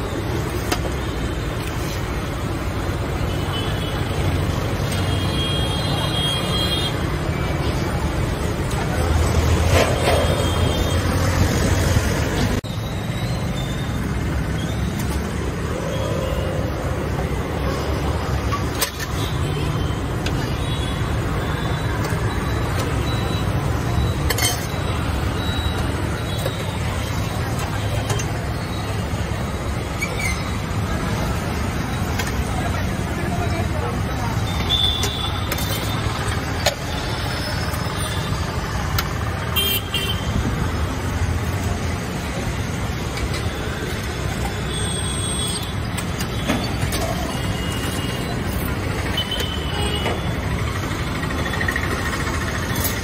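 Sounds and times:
low street rumble: 0.0s - 53.0s
steel utensils clinking: 24.1s - 28.4s
steel utensils clinking on pots: 24.2s - 24.9s.

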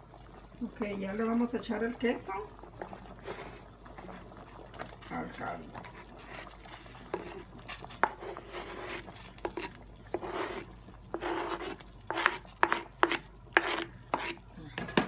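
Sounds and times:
spatula scraping cutting board: 5.8s - 14.4s.

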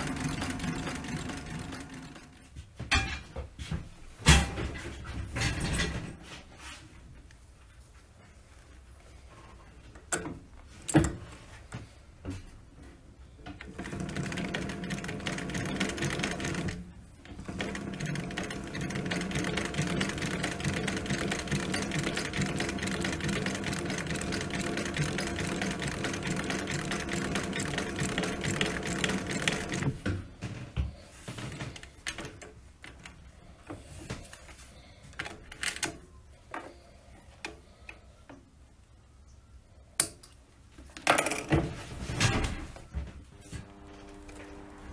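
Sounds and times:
sewing machine stitching: 0.0s - 2.4s, 13.6s - 30.1s.

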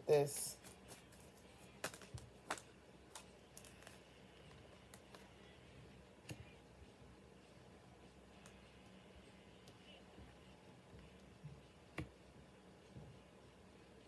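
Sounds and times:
cards clicking and tapping: 0.6s - 5.4s, 6.2s - 6.6s, 11.9s - 12.2s.

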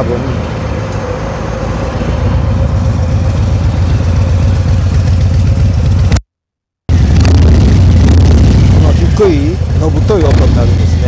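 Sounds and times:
motorcycle engine idling: 2.1s - 6.2s, 6.9s - 11.0s.

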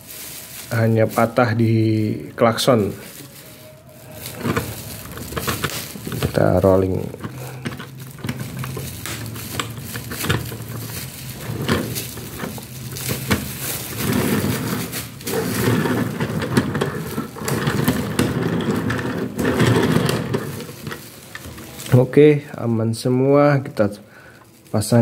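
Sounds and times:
model train wheels rumbling on rails: 4.2s - 21.9s.

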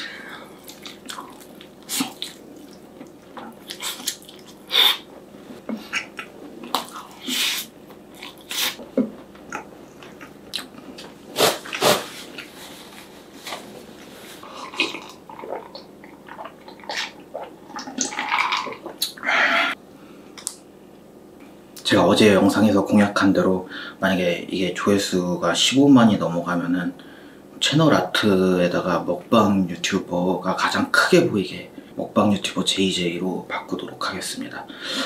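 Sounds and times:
wet chewing: 0.6s - 5.1s, 5.7s - 10.8s
mouth smacks and clicks: 5.7s - 12.5s, 17.8s - 19.2s.

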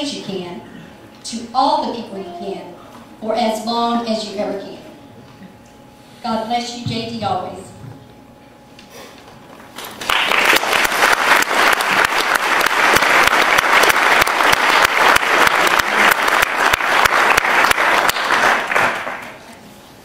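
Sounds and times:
audience applauding: 9.8s - 19.4s.

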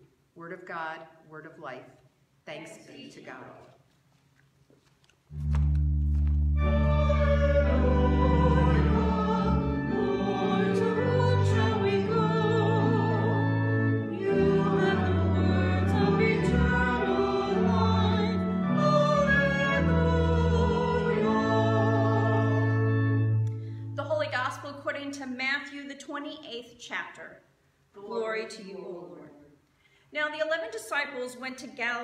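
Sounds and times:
low sustained instrumental chords: 5.4s - 24.1s
choir singing with vibrato: 6.6s - 23.8s.

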